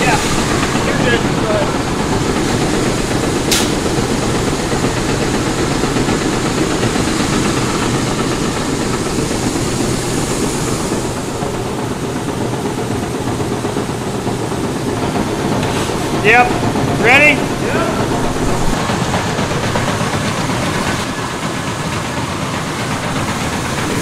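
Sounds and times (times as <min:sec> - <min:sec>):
grain-handling machinery running: 0:00.0 - 0:24.0
sharp click: 0:03.5 - 0:03.9.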